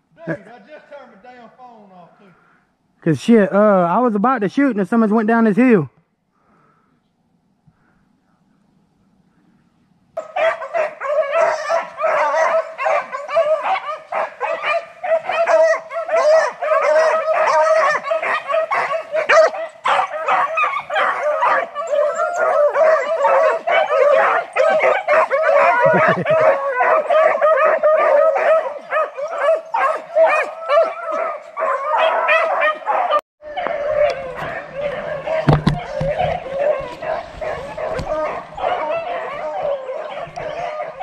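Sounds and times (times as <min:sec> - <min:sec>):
hounds baying and barking: 0:10.2 - 0:41.0.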